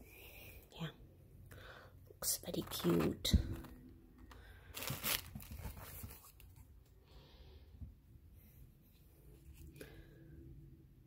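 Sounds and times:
box handling rustles: 4.7s - 6.7s.

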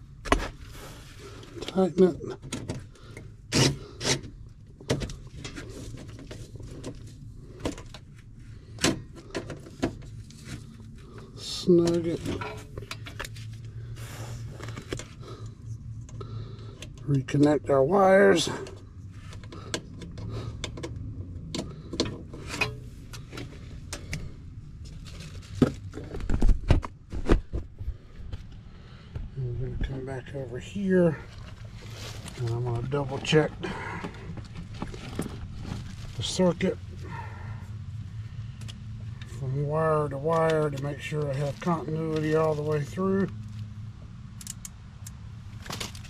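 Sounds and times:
wire connectors clicking: 44.3s - 45.2s.

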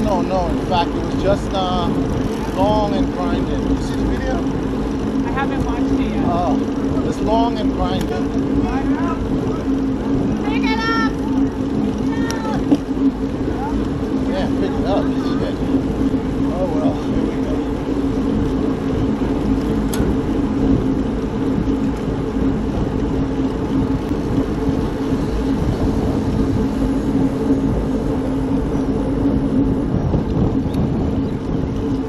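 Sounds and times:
vehicle engine running: 0.0s - 32.0s
wind and road noise rumble: 0.0s - 32.0s.

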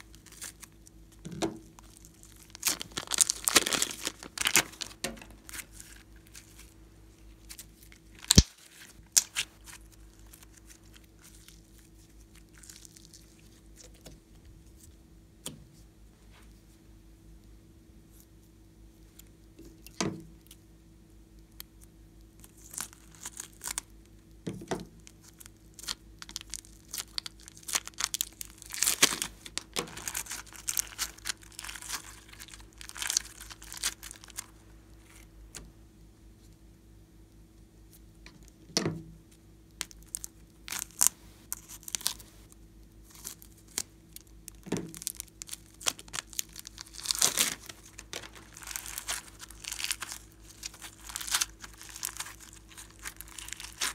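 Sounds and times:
plastic bags crinkling and tearing: 1.7s - 14.1s, 22.4s - 23.9s, 25.0s - 35.3s, 39.8s - 42.3s, 43.0s - 53.9s.

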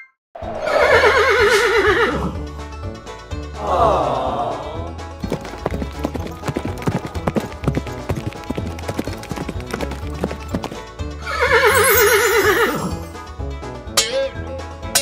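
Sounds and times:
horse whinny: 0.6s - 2.4s, 11.2s - 13.1s
background music: 0.8s - 15.0s
horse hooves clopping: 5.2s - 10.9s, 11.5s - 13.2s.

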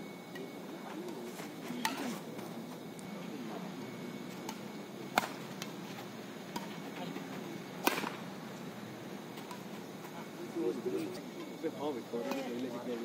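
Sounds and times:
rackets hitting shuttlecock: 1.8s - 2.1s, 4.4s - 5.7s, 7.8s - 8.2s.

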